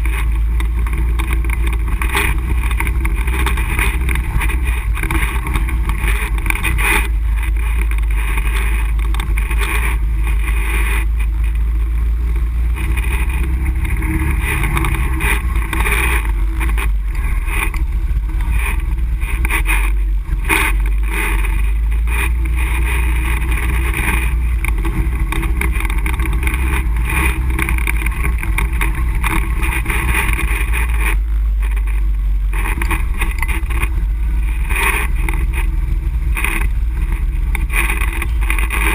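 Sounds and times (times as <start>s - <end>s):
atv engine running: 0.0s - 38.9s
second vehicle engine: 0.0s - 38.9s.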